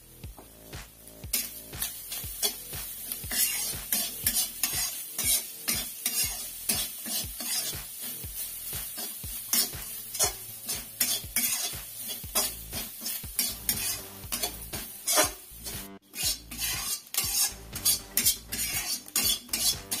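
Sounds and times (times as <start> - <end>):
light sizzle: 0.0 - 20.0
metal spatula scraping a wok: 1.3 - 20.0.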